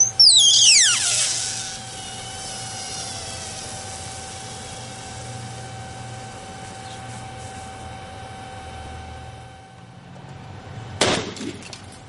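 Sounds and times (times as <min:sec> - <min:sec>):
shrill whistle falling in pitch: 0:00.0 - 0:03.8
capacitor bursting blast: 0:00.0 - 0:06.3
gas hissing: 0:00.0 - 0:07.6.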